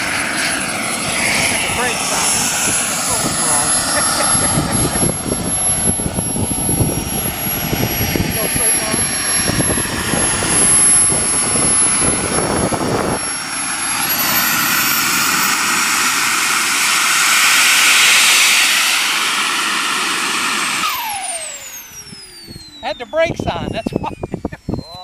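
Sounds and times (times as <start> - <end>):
low rumble: 0.0 - 15.6
model jet turbine whine: 0.0 - 25.0.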